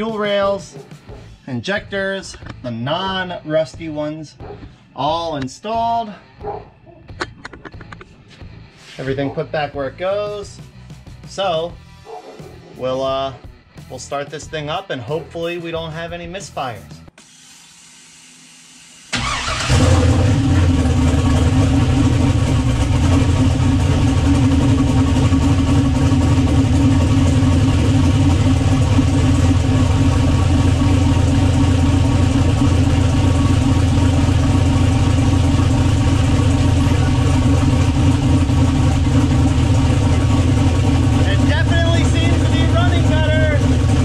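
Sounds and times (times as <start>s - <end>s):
car engine starting and running: 19.1s - 44.0s.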